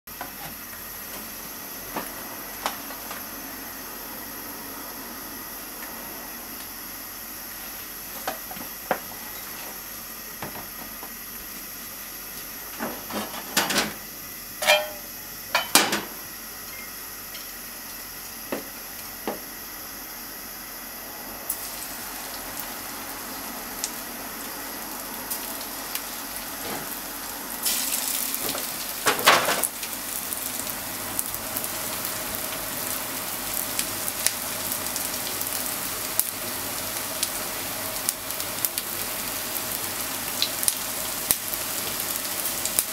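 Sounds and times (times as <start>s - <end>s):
oil heating in a frying pan: 0.1s - 42.9s
chicken sizzling in hot oil: 11.2s - 42.9s
utensils knocking and clinking: 14.6s - 16.0s.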